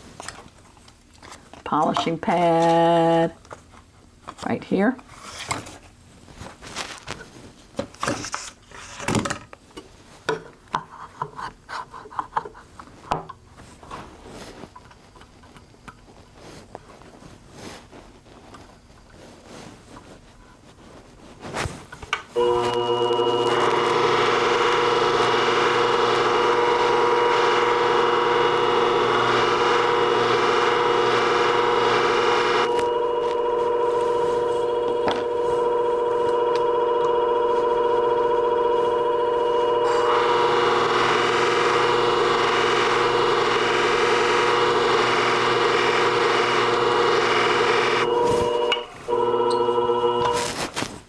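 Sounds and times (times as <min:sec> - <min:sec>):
blade hissing on polishing pad: 0:22.4 - 0:36.6, 0:38.8 - 0:48.9
motor humming: 0:22.4 - 0:50.4.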